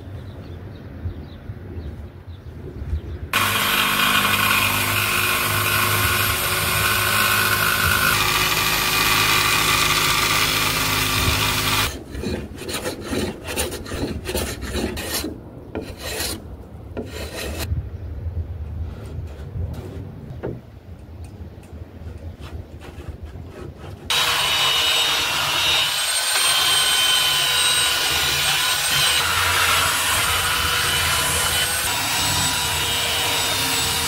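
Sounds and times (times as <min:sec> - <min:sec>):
jigsaw cutting plywood: 0:03.4 - 0:11.9, 0:24.1 - 0:34.0
hand tool scraping plywood edge: 0:03.4 - 0:16.4, 0:17.0 - 0:17.7, 0:22.0 - 0:27.9.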